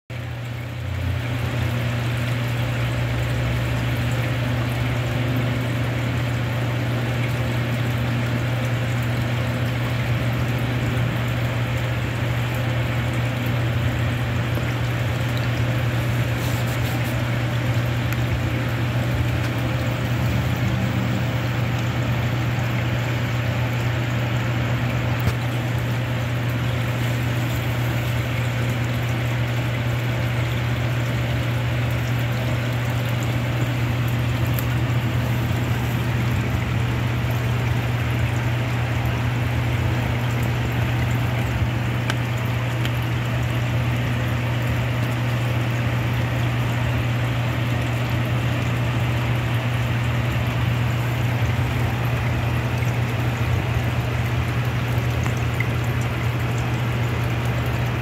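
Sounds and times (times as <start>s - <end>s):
constant low hum: 0.1s - 58.0s.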